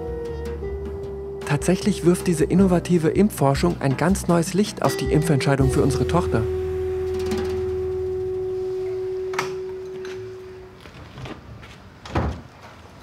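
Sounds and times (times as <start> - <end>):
held pure tone: 4.8 - 11.2
low hum: 5.6 - 11.2.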